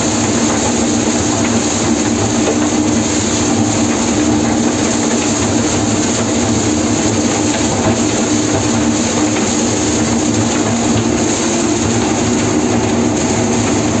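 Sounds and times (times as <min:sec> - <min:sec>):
combine harvester mechanical drone: 0:00.0 - 0:14.0.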